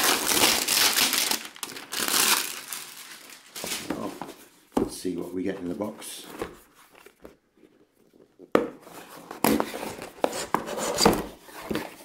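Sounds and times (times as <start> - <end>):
cardboard box scraping and rustling: 8.8 - 12.0.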